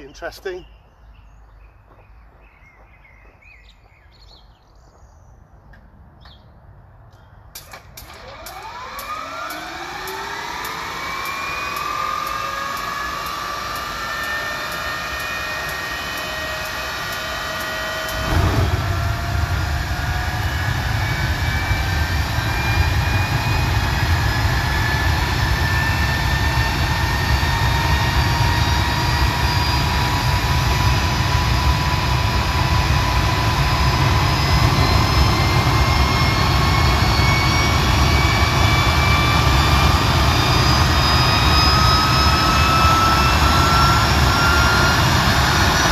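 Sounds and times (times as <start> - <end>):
turbojet whine: 7.4 - 45.9
heavy low rumble: 17.9 - 25.7.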